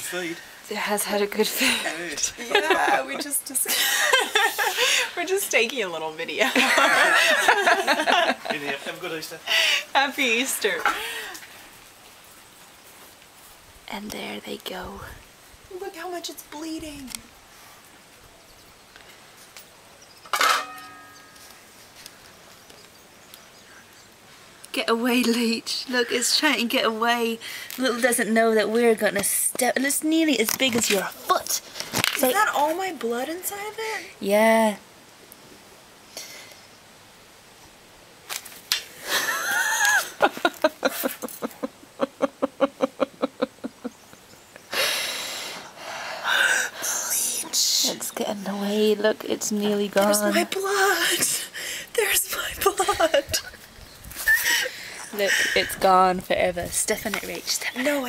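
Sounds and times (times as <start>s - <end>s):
faint background noise: 0.0s - 58.0s
breathy hiss: 3.7s - 5.2s, 9.4s - 11.9s, 27.3s - 27.8s, 36.0s - 36.8s, 44.6s - 47.6s, 50.8s - 52.6s, 54.3s - 55.9s
sharp ringing strike: 20.6s - 21.4s.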